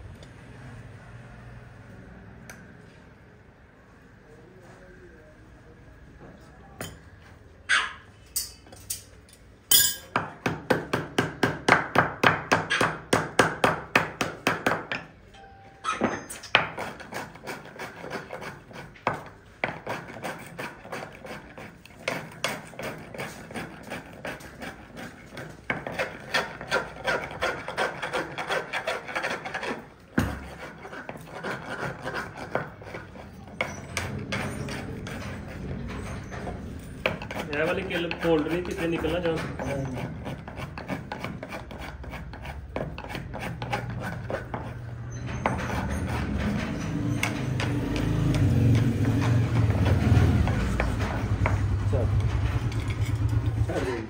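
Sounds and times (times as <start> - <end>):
hammer strikes on horseshoe: 9.7 - 17.1, 30.1 - 31.9
rasp scraping hoof: 16.3 - 54.0.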